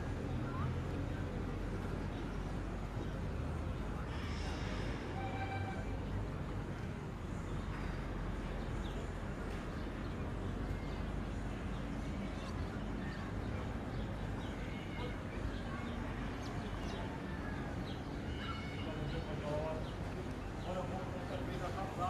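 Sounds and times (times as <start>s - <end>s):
faint distant voices: 0.0s - 22.0s.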